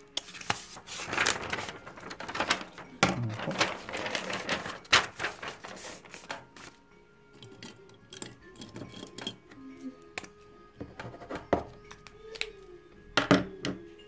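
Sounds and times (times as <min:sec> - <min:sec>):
paper rustling: 0:00.2 - 0:06.8.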